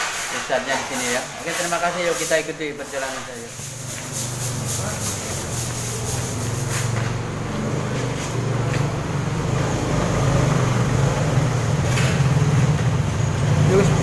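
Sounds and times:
hands brushing vinyl banner: 0.0s - 7.2s.

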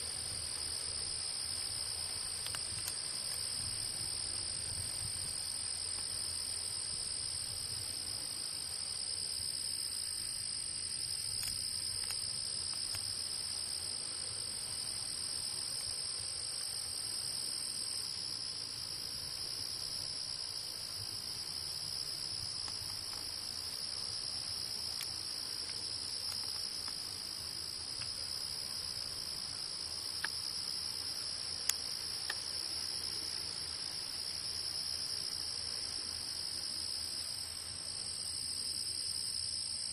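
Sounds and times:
faint clicks: 2.4s - 3.5s, 31.6s - 32.5s.

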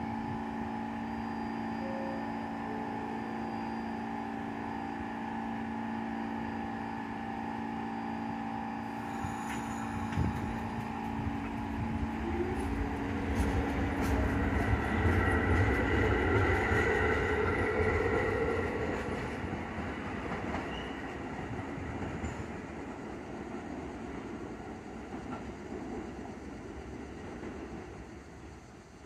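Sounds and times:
train motor whine: 0.0s - 23.0s
train wheels clicking on rail joints: 9.0s - 24.3s, 24.9s - 28.4s.

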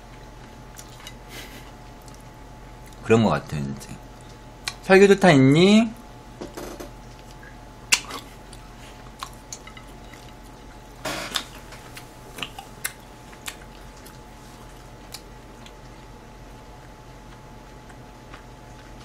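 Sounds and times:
person chewing food: 0.0s - 3.0s, 7.0s - 19.0s.

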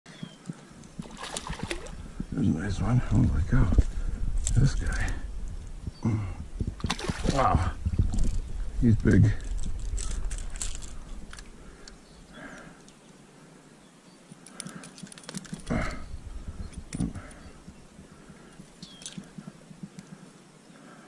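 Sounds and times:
stream water splashes: 1.0s - 2.1s, 6.8s - 8.3s
fishing gear clicks: 3.8s - 5.2s, 8.1s - 13.0s, 14.3s - 20.2s.

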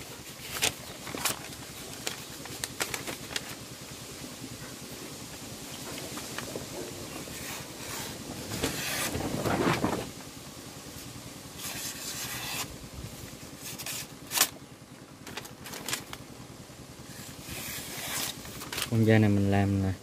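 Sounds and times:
knife slicing paper: 7.1s - 10.0s, 11.6s - 12.7s, 13.6s - 14.6s, 17.1s - 19.0s.

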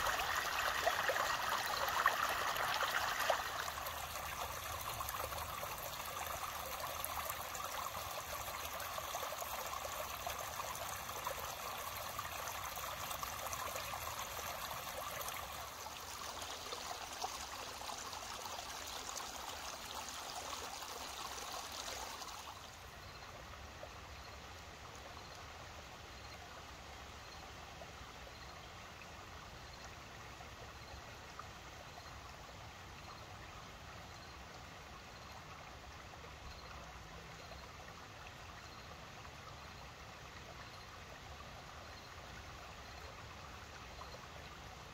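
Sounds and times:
creek trickling over stones: 0.0s - 44.9s.

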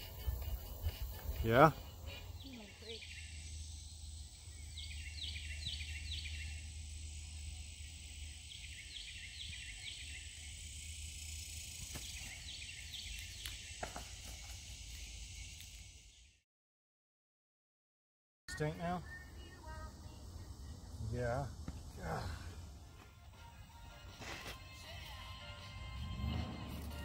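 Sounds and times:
insects droning: 0.0s - 16.4s, 18.5s - 27.0s
bird singing falling notes: 11.6s - 14.3s.

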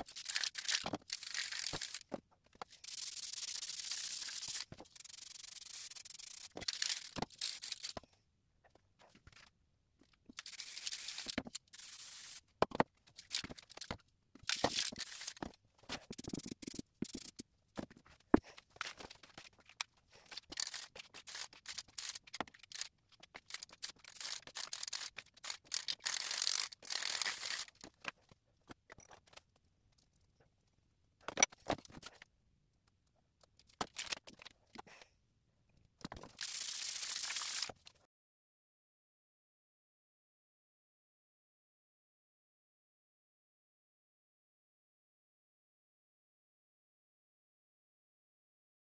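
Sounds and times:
aerosol spray can hissing: 2.8s - 7.8s, 10.4s - 12.4s, 16.1s - 17.4s, 36.4s - 37.7s.

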